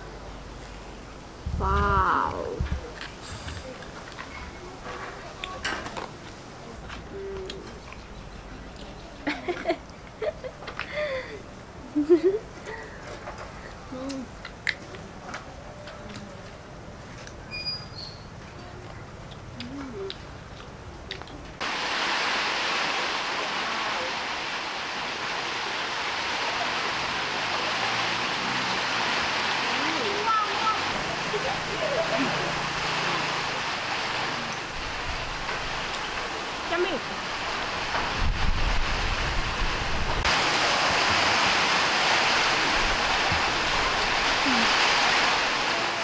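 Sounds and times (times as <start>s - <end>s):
heavy rain hissing: 0.0s - 5.4s, 21.6s - 46.0s
loud steady rushing noise: 21.6s - 46.0s.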